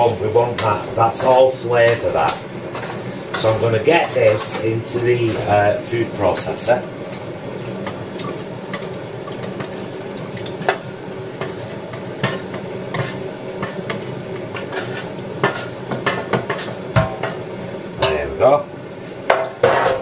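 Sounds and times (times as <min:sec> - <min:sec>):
steady low hum: 0:00.0 - 0:20.0
spatula scraping metal tray: 0:02.7 - 0:05.6, 0:12.2 - 0:13.9, 0:14.5 - 0:16.7.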